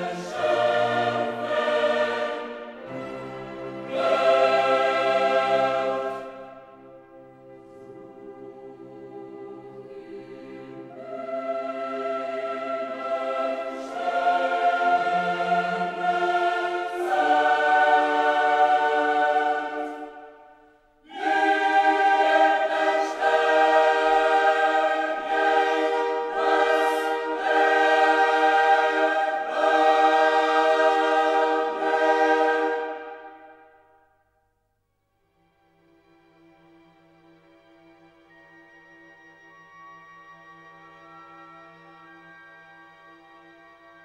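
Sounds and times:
choir singing sustained chords: 0.0s - 34.4s.

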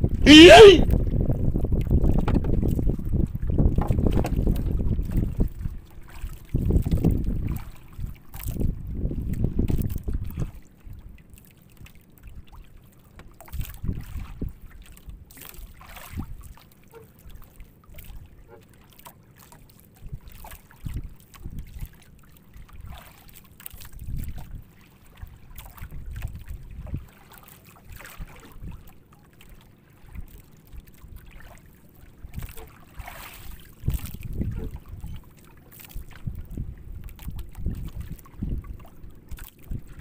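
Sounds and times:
wind on microphone: 0.0s - 10.6s, 13.5s - 14.6s, 24.0s - 24.6s, 33.5s - 35.3s, 35.9s - 40.0s
water splashing against boat hull: 1.0s - 10.7s, 11.7s - 40.0s.

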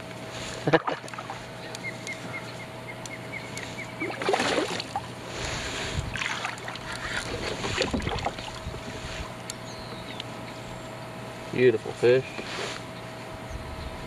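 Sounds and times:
fish splashing in water: 0.8s - 1.4s, 4.0s - 8.9s.

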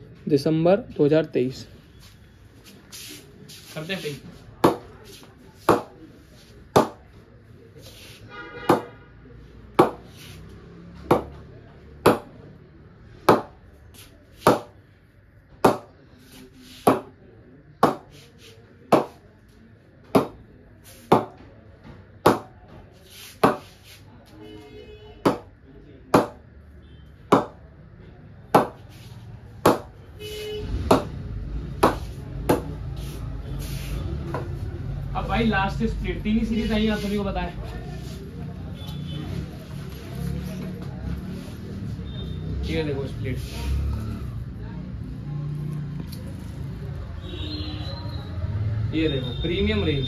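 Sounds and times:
cricket bat being struck: 8.7s - 8.9s, 9.8s - 10.1s, 14.4s - 14.8s, 15.6s - 15.9s, 25.2s - 25.5s, 29.6s - 29.9s.

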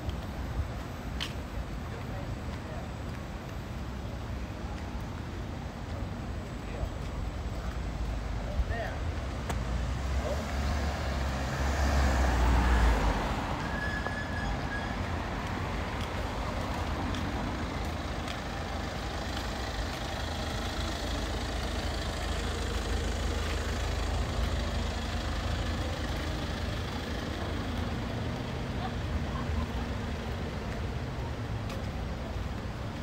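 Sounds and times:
traffic rumble: 0.0s - 33.0s
vehicle passing close by: 10.0s - 13.6s.

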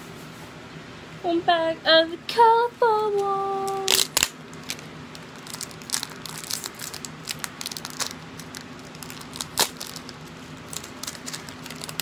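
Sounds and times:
plastic bag crinkling: 3.6s - 12.0s.

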